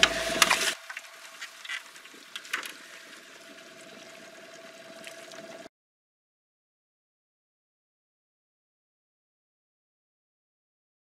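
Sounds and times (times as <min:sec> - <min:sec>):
faint steady whine: 0:00.0 - 0:05.7
fish splashing at water surface: 0:00.0 - 0:05.7.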